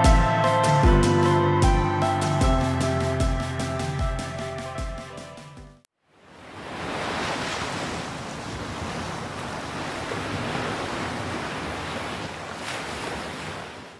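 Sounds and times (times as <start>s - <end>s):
ocean surf breaking on beach: 6.1s - 13.9s.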